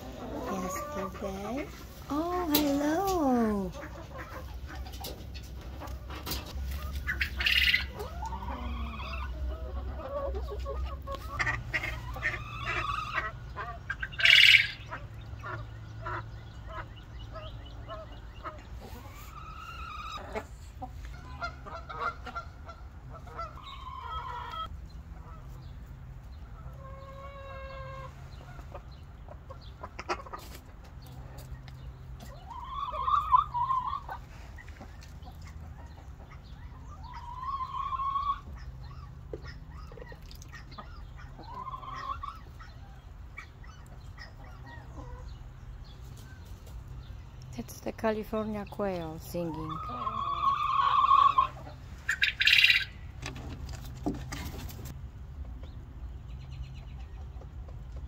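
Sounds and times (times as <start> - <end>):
chickens clucking and calling: 0.0 - 58.0
loud chicken squawk: 7.1 - 9.4, 37.0 - 38.6, 49.8 - 53.0.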